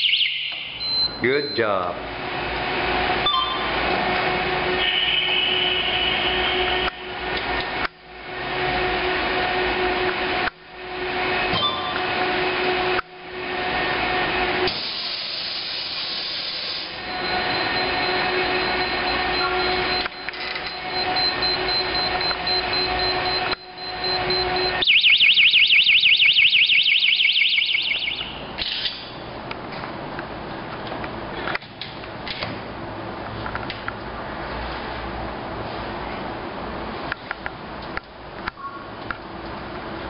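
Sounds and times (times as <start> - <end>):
fire alarm warbling: 0.0 - 1.9, 3.1 - 3.8, 4.4 - 7.0, 15.3 - 28.6
low hum: 16.8 - 25.0.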